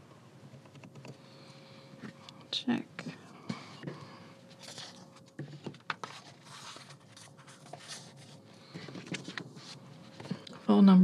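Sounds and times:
paper handling: 3.5s - 10.5s.

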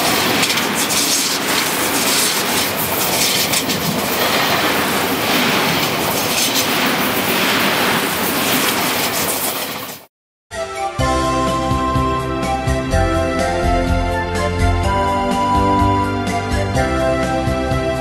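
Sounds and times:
electric train passing: 0.0s - 10.0s
wheels clacking over rail joints: 0.0s - 10.1s.

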